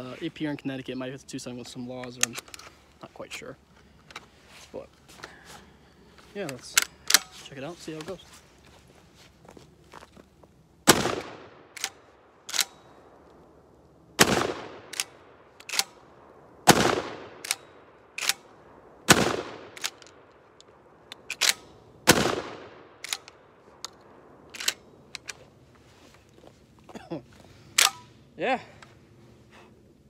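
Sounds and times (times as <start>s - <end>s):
shotgun firing: 10.9s - 11.7s, 14.2s - 15.1s, 16.6s - 17.6s, 19.1s - 20.0s, 21.4s - 23.0s.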